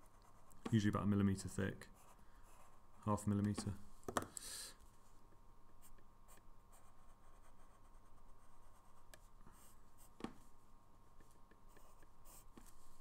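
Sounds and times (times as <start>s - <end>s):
pencil scratching on paper: 11.7s - 12.8s.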